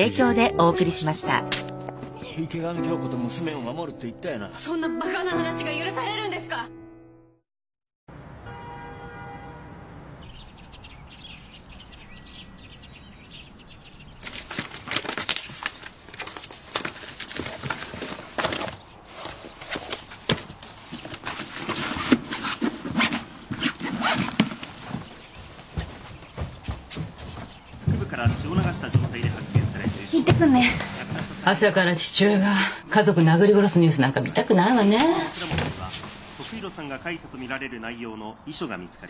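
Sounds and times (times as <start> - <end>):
birds chirping: 0.0 - 3.8, 10.2 - 15.0, 23.3 - 32.2.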